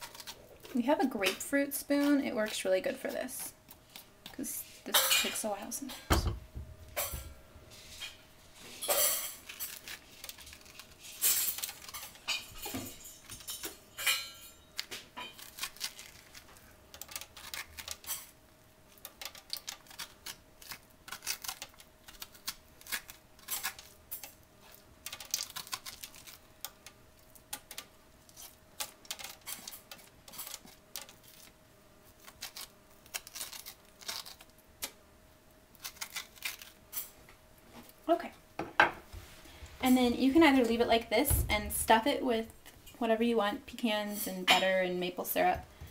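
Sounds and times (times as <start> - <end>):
spoon scraping squash: 7.7 - 35.0.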